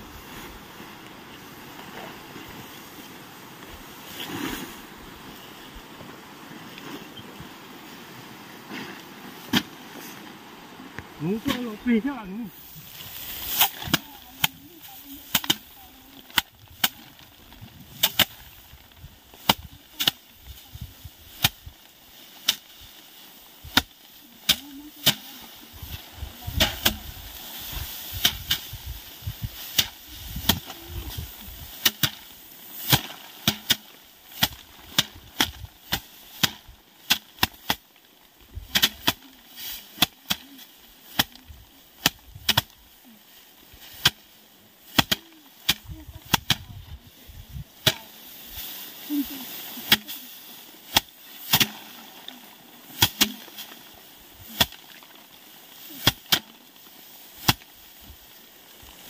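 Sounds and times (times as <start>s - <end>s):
rice sheaves thwacking wooden board: 31.8s - 37.9s, 42.0s - 42.8s, 44.8s - 46.6s, 50.9s - 52.0s, 53.0s - 53.6s, 57.4s - 57.8s.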